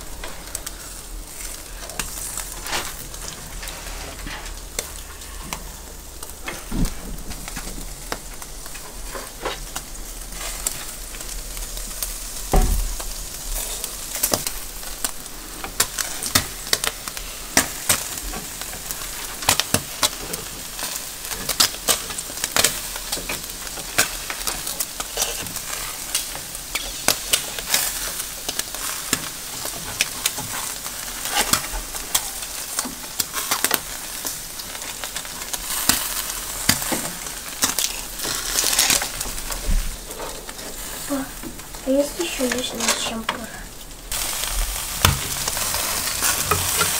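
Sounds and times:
fat crackling and popping: 0.0 - 46.9
meat sizzling on charcoal grill: 0.0 - 46.9.

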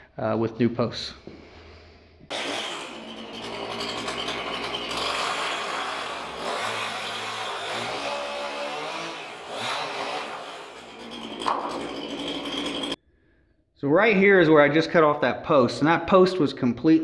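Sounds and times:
power saw cutting wood: 2.3 - 13.0.

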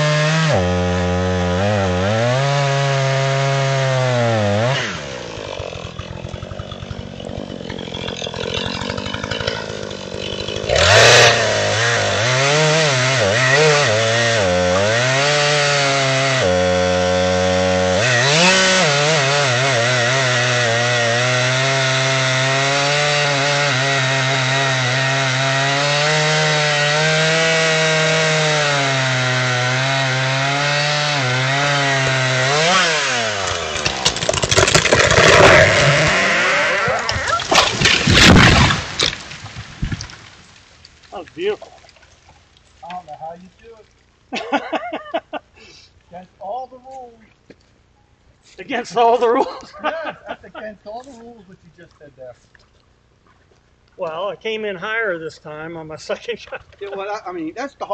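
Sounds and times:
chainsaw cutting tree trunk: 0.0 - 41.6.

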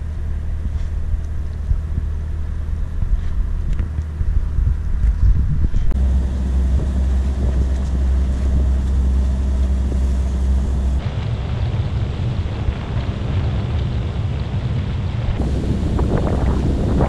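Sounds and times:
steady low drone: 0.0 - 17.0
wind on microphone: 0.0 - 17.0
water rushing along hull: 6.0 - 17.0.

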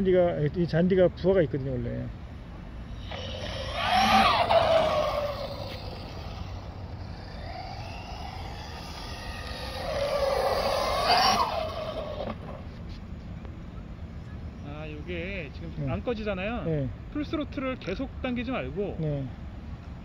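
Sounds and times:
rc car motor whining past: 2.8 - 12.8.

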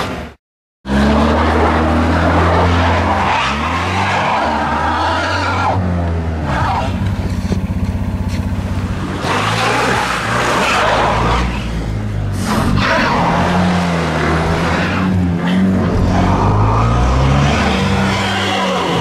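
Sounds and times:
car engine revving: 0.9 - 19.0
tyres spinning in snow: 6.4 - 19.0.

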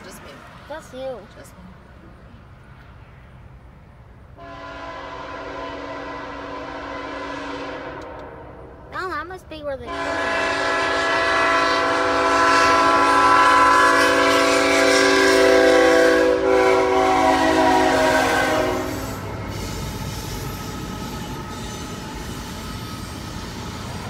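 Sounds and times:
train rolling rumble: 0.0 - 24.0
locomotive horn blast: 4.4 - 8.7, 9.9 - 19.7.

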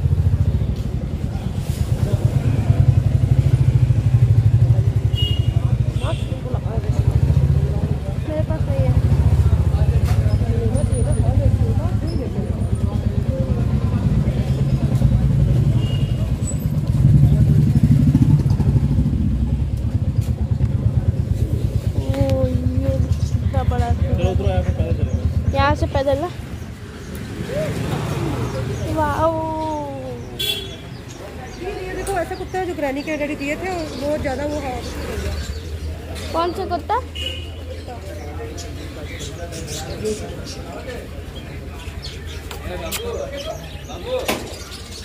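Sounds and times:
motorcycle engine idling: 0.0 - 27.4.

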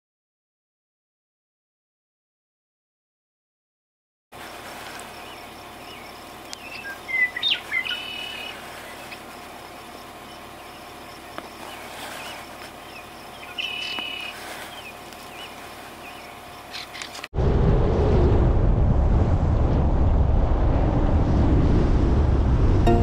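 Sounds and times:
swallows chirping and twittering: 4.8 - 17.2.

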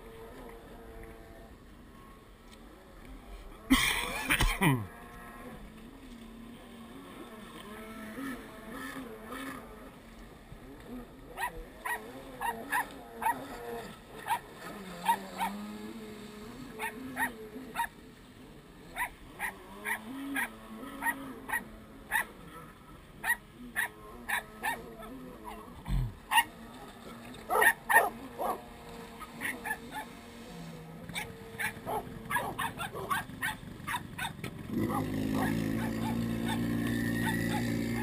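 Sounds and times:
jet skis droning: 0.0 - 38.0
dog barking: 27.5 - 28.6, 31.2 - 36.6.

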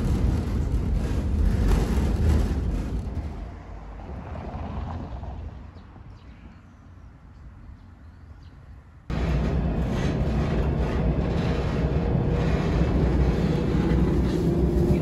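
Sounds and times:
tram wheels rumbling on rails: 0.0 - 5.7, 9.1 - 15.0
quiet outdoor air: 0.0 - 15.0.

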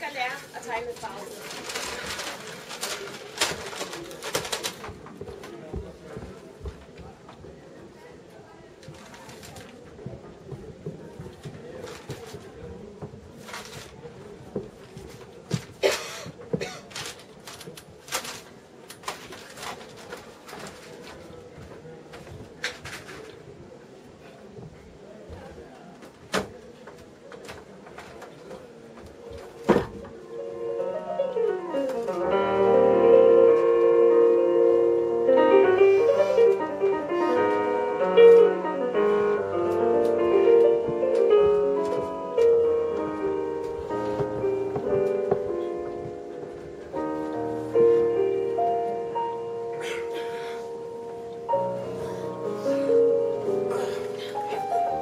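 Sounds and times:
knocks and rustling on stage: 1.0 - 8.0, 8.8 - 23.4, 24.6 - 30.2, 39.1 - 47.7
piano music: 30.1 - 55.0.

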